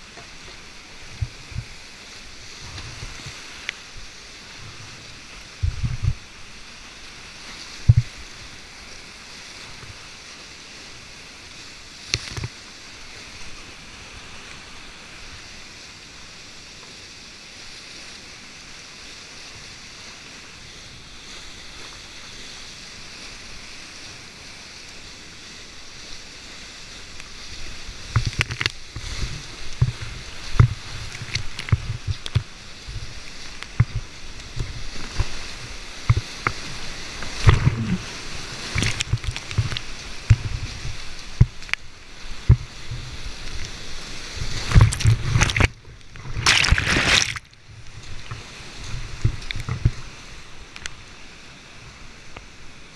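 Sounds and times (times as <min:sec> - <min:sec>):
water slapping against boat: 0:00.0 - 0:08.7, 0:11.5 - 0:13.6, 0:26.0 - 0:51.1
rushing whitewater: 0:00.0 - 0:52.9.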